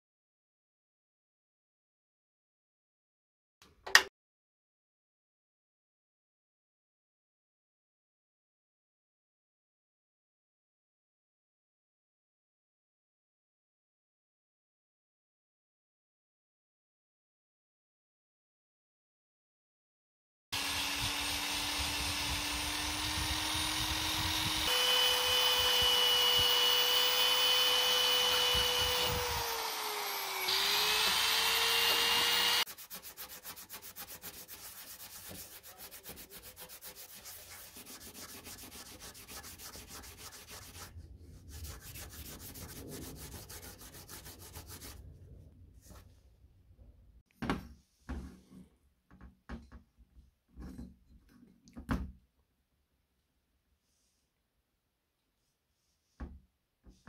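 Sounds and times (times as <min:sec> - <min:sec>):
rotary wire brush scrubbing metal: 0:20.6 - 0:45.0
rapid hand scrubbing strokes: 0:30.7 - 0:45.0.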